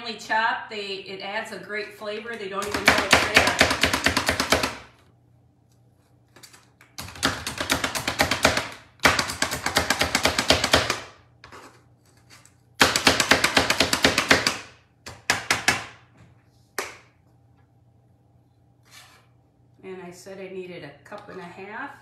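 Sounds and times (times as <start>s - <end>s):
food chopper tapping on cutting board: 2.6s - 4.9s, 7.0s - 11.1s, 12.8s - 15.9s.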